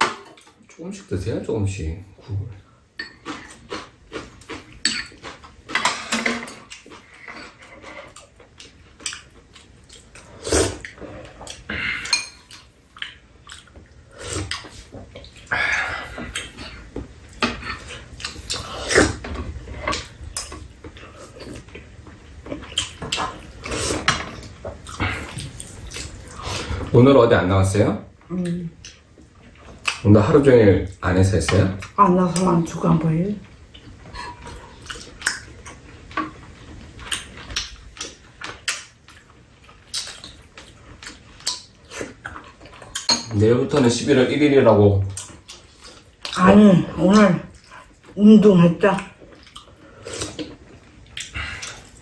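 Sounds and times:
spoons and chopsticks clinking on bowls: 12.1 - 12.6, 43.0 - 43.4.

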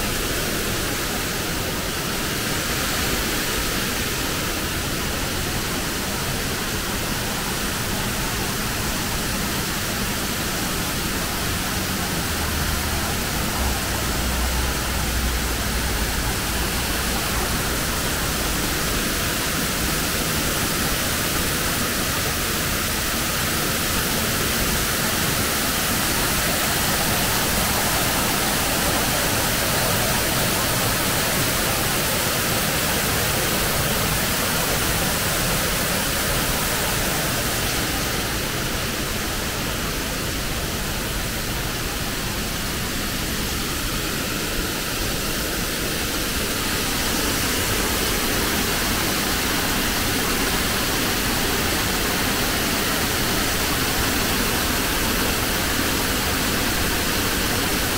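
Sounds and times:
waterfall rushing: 0.0 - 57.9.

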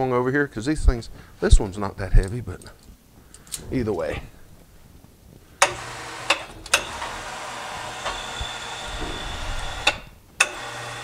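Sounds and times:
crane hoist motor running: 5.6 - 11.0.

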